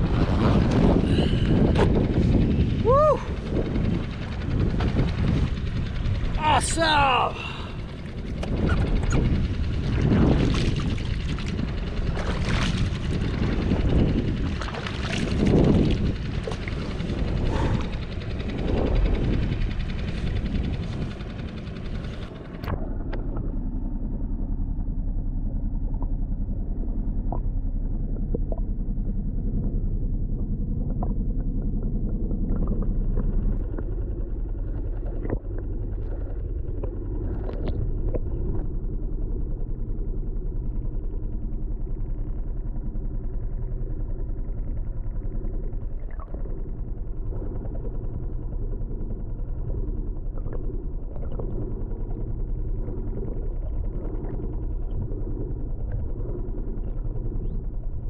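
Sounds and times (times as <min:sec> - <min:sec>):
wind buffeting: 0:00.0 - 0:23.6
muffled underwater rumble: 0:00.0 - 0:58.0
water sloshing against kayak: 0:07.5 - 0:23.7.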